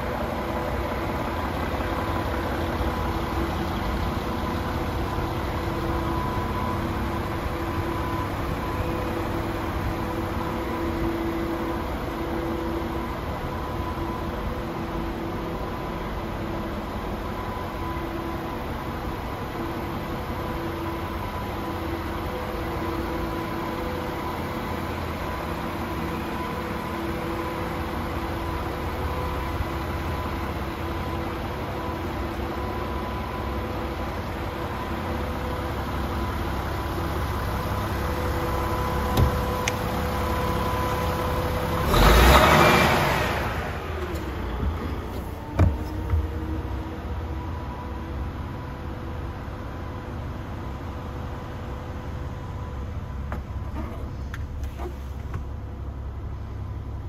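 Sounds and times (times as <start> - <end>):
mechanical hum with low rumble: 43.2 - 57.0.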